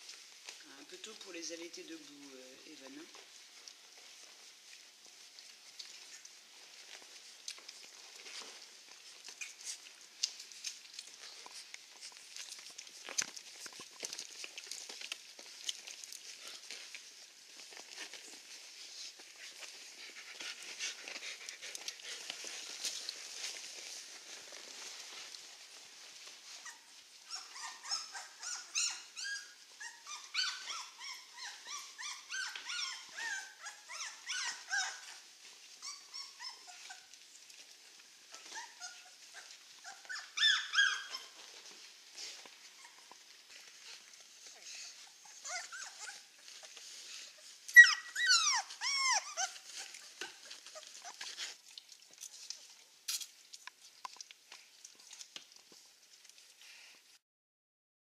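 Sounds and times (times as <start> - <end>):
puppies whimpering and squeaking: 4.0 - 51.9
puppies yelping: 26.6 - 37.1, 38.4 - 41.5, 44.7 - 46.5, 47.4 - 51.4.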